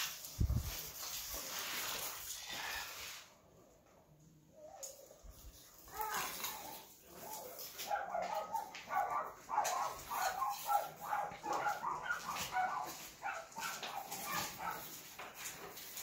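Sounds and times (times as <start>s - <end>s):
dog whining and yipping: 7.4s - 14.8s.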